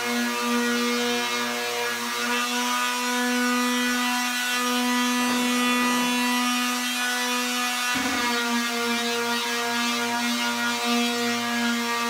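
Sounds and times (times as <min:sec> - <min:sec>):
sander scuffing canvas: 0:08.0 - 0:09.0
electric sander humming: 0:08.0 - 0:10.2.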